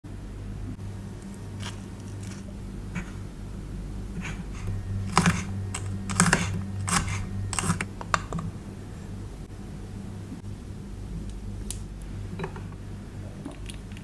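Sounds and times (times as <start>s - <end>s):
steady low hum: 0.0s - 14.0s
knife chopping on wooden board: 5.1s - 8.4s.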